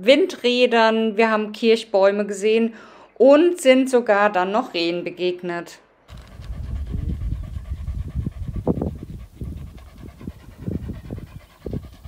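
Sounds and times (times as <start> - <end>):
dog panting: 6.1 - 12.0
steady low rumble: 6.1 - 12.0.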